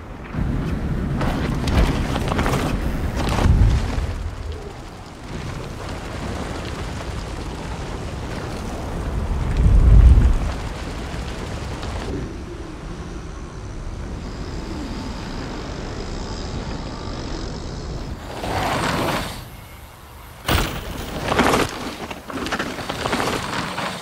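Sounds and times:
tyres rumbling on dirt: 0.2 - 12.3, 13.7 - 24.0.

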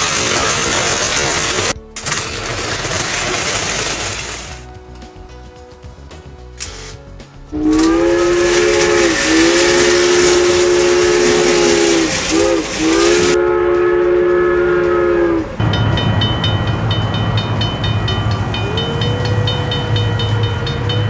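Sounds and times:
steam locomotive whistle: 0.0 - 4.4, 7.6 - 15.8, 18.3 - 21.0
hiss of steam: 7.6 - 13.4.

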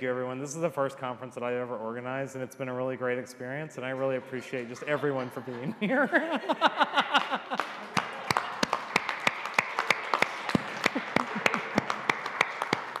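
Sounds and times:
person laughing: 4.8 - 7.7, 10.6 - 12.2
audience applauding: 6.5 - 13.0.

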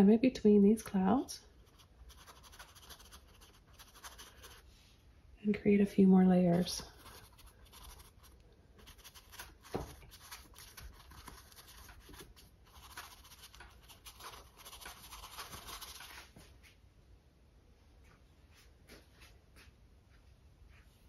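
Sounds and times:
paintbrush scratching on canvas: 1.5 - 4.7, 6.5 - 16.3.

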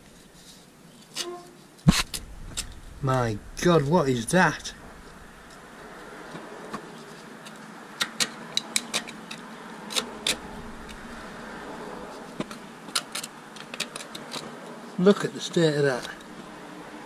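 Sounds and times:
steady low hum: 1.4 - 6.7, 10.1 - 12.8
blade clicking and scraping: 7.2 - 11.3.

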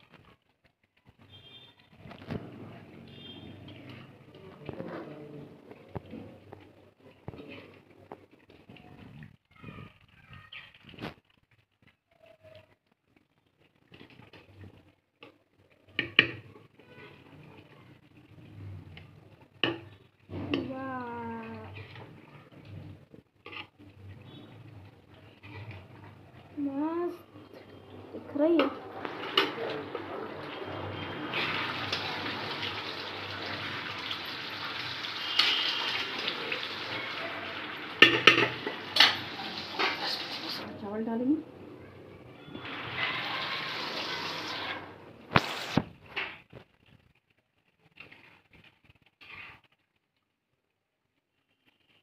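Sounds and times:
ladle scraping metal pot: 21.4 - 26.2, 27.4 - 34.2, 35.1 - 40.7.

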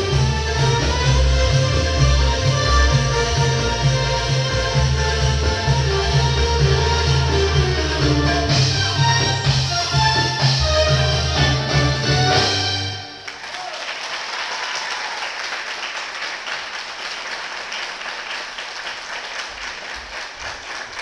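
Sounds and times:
band with keyboards and hand drums: 0.0 - 13.0
audience applauding: 13.1 - 21.0.

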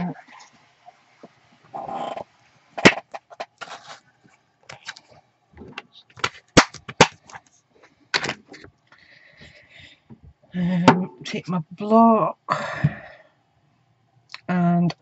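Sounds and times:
plastic sheets crinkling: 2.8 - 5.2, 5.9 - 8.7.

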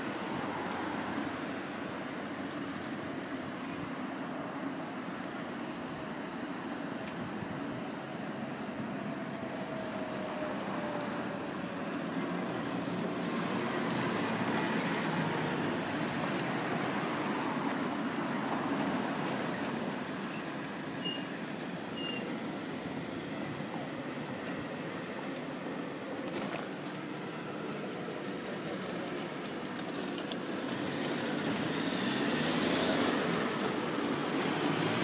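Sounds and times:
wheelchair wheels rolling on tarmac: 24.6 - 35.0.

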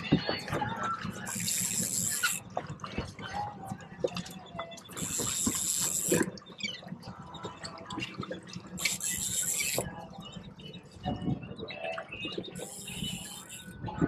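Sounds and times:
fishing reel drag buzzing: 1.3 - 2.4, 5.0 - 6.2, 8.8 - 9.8, 12.6 - 13.7.

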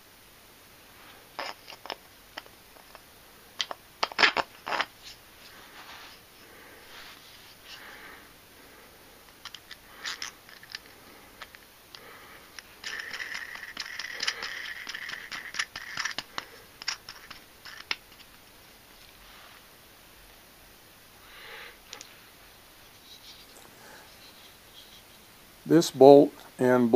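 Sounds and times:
bolt scraping through wooden block: 12.8 - 18.0.

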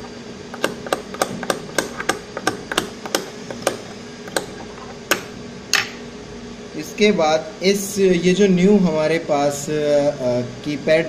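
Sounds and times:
sharp tapping clicks: 0.5 - 5.3.

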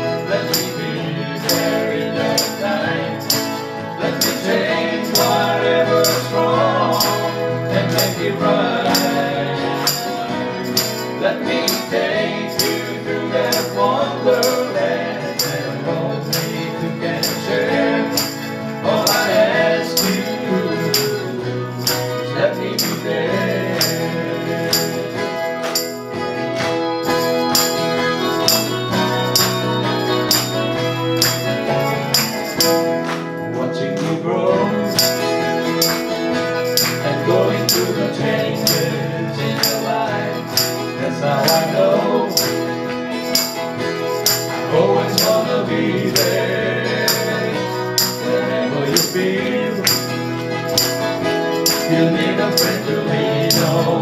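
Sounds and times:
live band playing country-pop: 0.0 - 54.0
jingling percussion tick: 26.6 - 32.9, 34.9 - 38.9, 40.5 - 41.8, 42.4 - 46.4, 47.0 - 48.3, 48.9 - 52.9.

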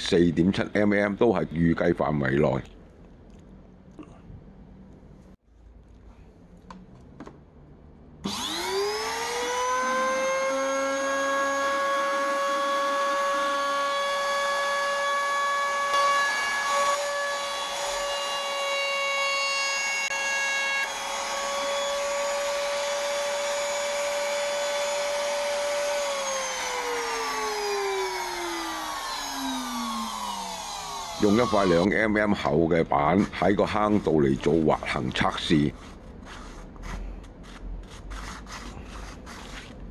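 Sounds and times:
electric router whining: 8.2 - 31.9.

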